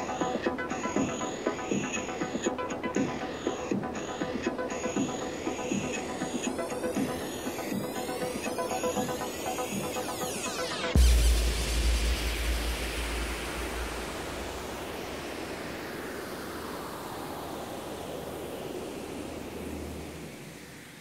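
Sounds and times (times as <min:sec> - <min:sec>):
deep cinematic boom: 0:11.0 - 0:15.6.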